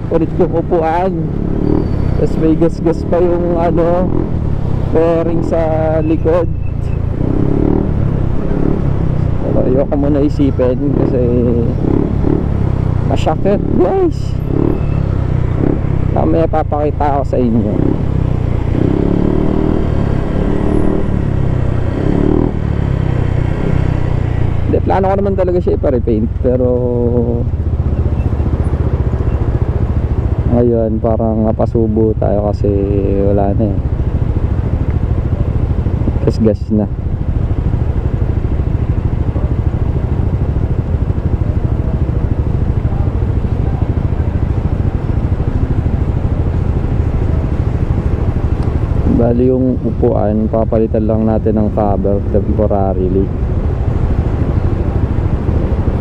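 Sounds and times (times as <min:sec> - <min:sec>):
scooter engine droning: 0:00.0 - 0:31.0
higher engine hum: 0:00.0 - 0:56.0
scooter engine running: 0:32.6 - 0:50.4.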